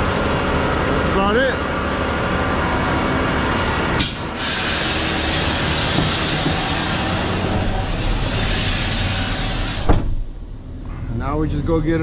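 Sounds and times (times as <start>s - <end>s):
diesel engine rumble: 0.0s - 12.0s
loud even hiss: 4.0s - 10.4s.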